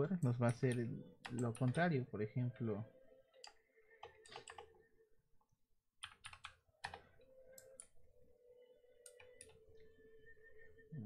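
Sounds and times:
typing on computer keyboard: 4.0 - 4.7, 6.0 - 7.9.

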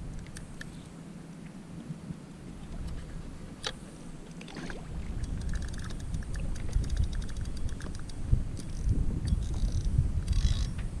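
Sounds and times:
water against kayak hull: 0.0 - 11.0
wind on microphone: 4.5 - 11.0
fast light ticks: 5.2 - 10.9.

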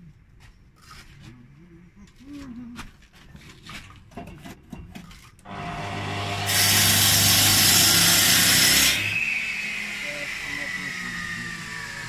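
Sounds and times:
power saw running: 5.5 - 12.0
saw cutting rasp: 5.5 - 12.0.

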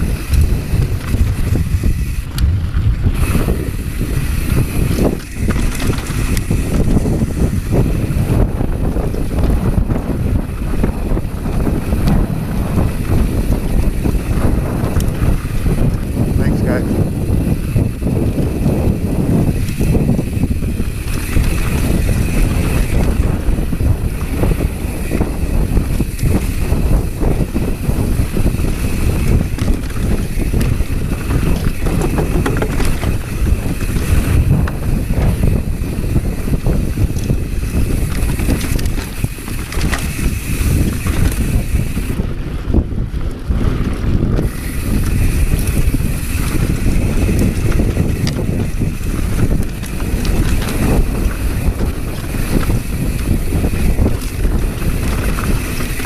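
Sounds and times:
bike knocks and rattles: 0.0 - 56.0
wind on microphone: 0.0 - 56.0.

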